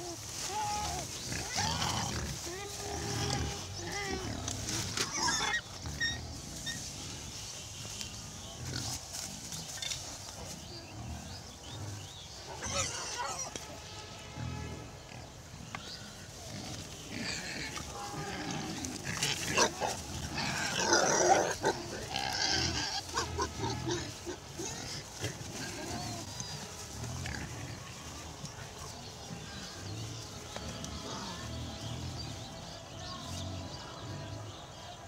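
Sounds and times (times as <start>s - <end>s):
wild boar squealing: 5.0s - 6.8s.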